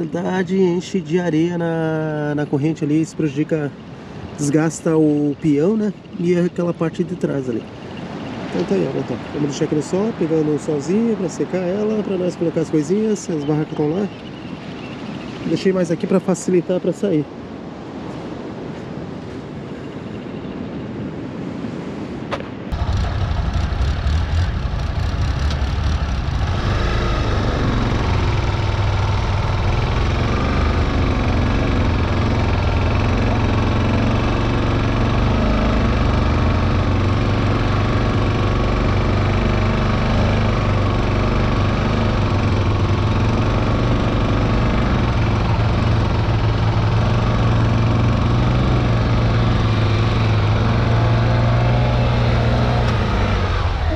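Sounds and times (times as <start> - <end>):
wind: 0.0 - 53.9
motorcycle engine idling: 22.7 - 51.5.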